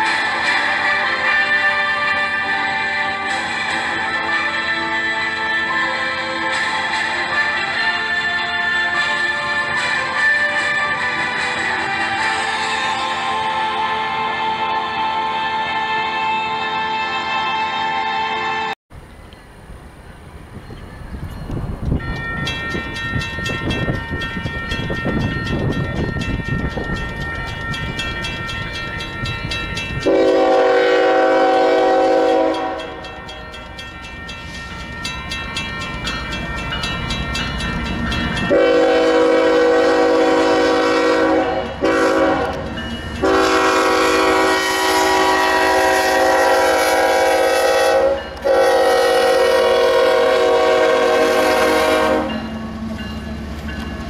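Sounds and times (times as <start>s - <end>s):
locomotive horn blasts: 0.0s - 18.8s, 30.0s - 33.0s, 38.5s - 52.5s
train rumbling: 0.0s - 54.0s.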